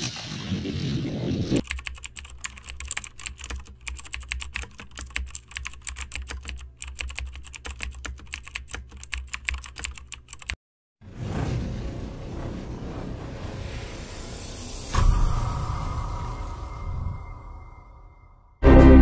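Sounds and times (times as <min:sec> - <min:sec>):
rapid irregular clicking: 0:01.6 - 0:10.6.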